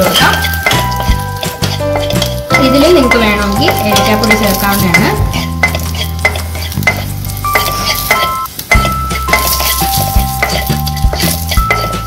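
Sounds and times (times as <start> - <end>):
wooden spatula scraping pan: 0.0 - 8.4
light sizzle: 0.0 - 12.0
soft background music: 0.0 - 12.0.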